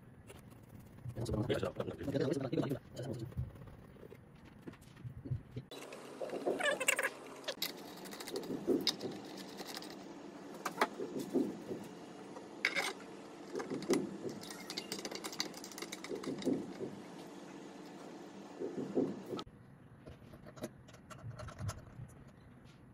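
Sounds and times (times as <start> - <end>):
metal parts and screwdriver rattling: 5.6 - 10.0, 12.6 - 16.9, 20.0 - 22.5.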